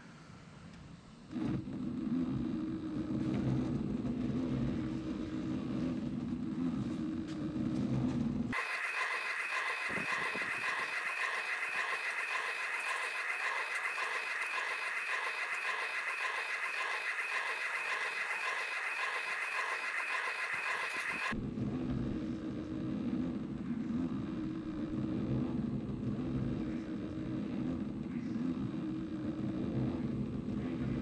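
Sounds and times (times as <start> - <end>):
fast fluttering machine whine: 8.5 - 21.4
laser cutter low hum: 8.6 - 27.6.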